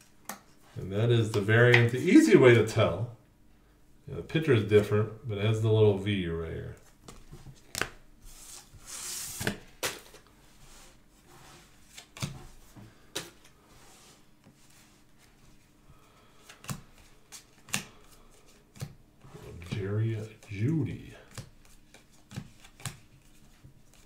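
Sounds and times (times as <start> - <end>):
cards rustling: 11.6 - 24.0.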